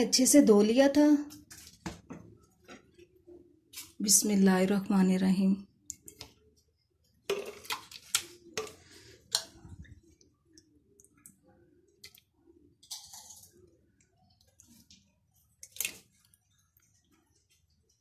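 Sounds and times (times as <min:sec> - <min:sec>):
spoon scraping glass bowl: 0:12.8 - 0:13.7
wet plops of pulp: 0:15.6 - 0:16.4.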